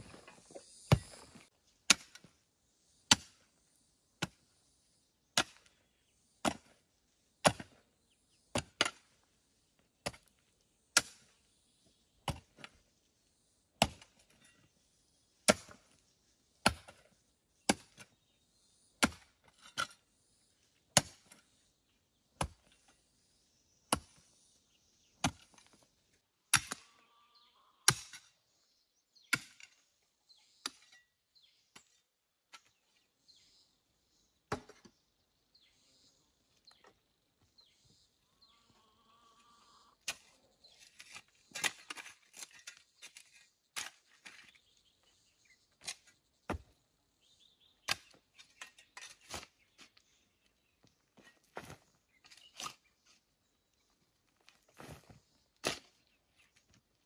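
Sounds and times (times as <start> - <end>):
hoe chopping into dry soil: 0.0 - 2.4, 3.1 - 3.5, 4.2 - 4.4, 5.4 - 5.7, 6.4 - 6.8, 7.4 - 7.8, 8.5 - 9.2, 10.0 - 11.4, 12.2 - 12.8, 13.8 - 14.4, 15.4 - 16.0, 16.6 - 18.2, 19.0 - 20.0, 20.9 - 21.4, 22.4 - 22.9, 23.9 - 24.2, 25.2 - 25.8, 26.5 - 26.9, 27.9 - 28.3, 45.8 - 46.8, 47.8 - 50.0, 54.7 - 56.1.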